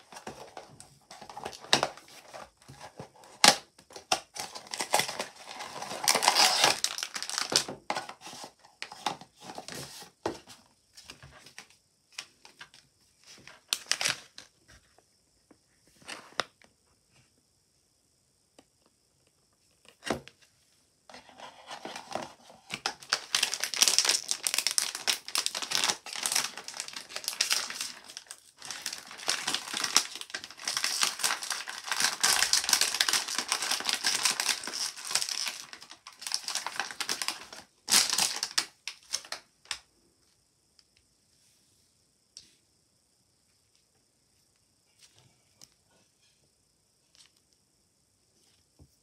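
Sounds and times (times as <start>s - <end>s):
plastic wrapping crinkling: 0.0s - 9.6s, 13.6s - 14.5s, 21.4s - 39.8s.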